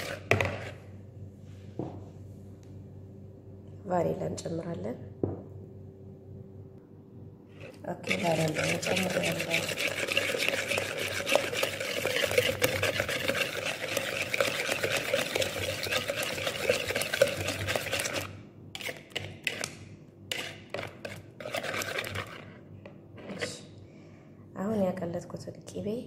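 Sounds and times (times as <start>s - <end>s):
whisk beating in plastic bowl: 0.0s - 0.7s, 7.6s - 19.7s, 20.3s - 22.6s.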